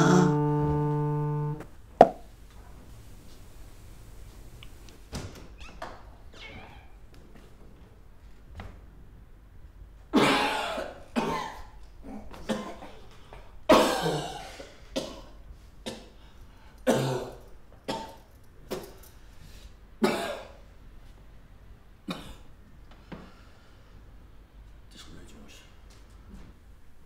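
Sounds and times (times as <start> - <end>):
man coughing hard: 0.0 - 0.4, 10.2 - 11.7, 13.7 - 15.3, 16.9 - 18.2, 20.0 - 20.5.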